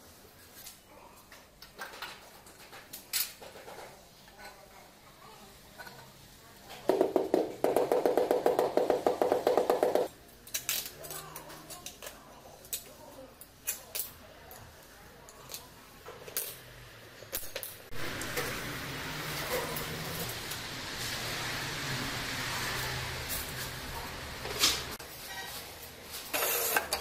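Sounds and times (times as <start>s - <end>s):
rubber mallet tapping on tile: 6.9s - 10.1s.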